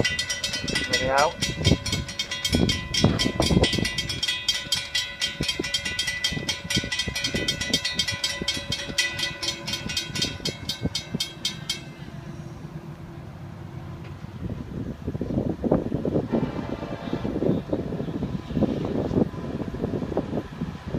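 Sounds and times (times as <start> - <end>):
railroad crossing bell ringing: 0.0 - 14.0
low steady rumble: 0.0 - 20.9.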